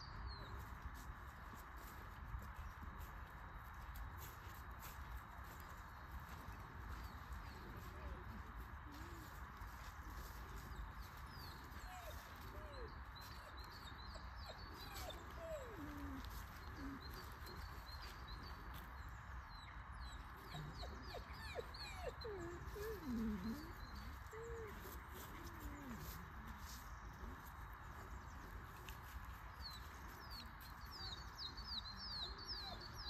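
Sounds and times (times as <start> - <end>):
small birds chirping: 4.2 - 33.0
dog whining: 14.9 - 16.2, 20.5 - 23.7.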